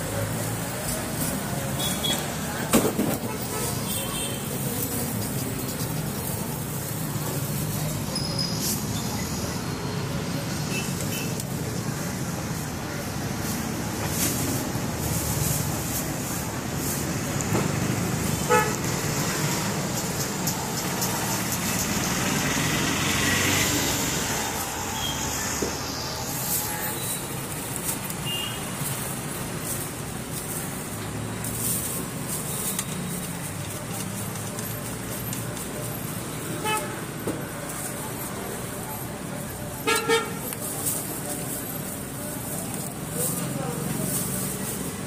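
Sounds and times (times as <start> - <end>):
road traffic rumble: 0.0 - 45.0
vehicle horn toot: 18.5 - 18.8, 28.2 - 28.6.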